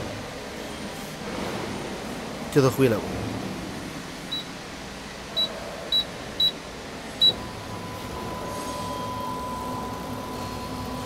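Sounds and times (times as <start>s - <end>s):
keypad beeps: 4.3s - 4.5s, 5.4s - 6.6s.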